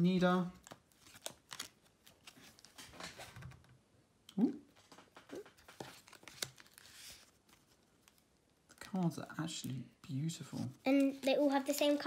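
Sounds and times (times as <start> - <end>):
trading cards being shuffled: 4.8 - 7.7.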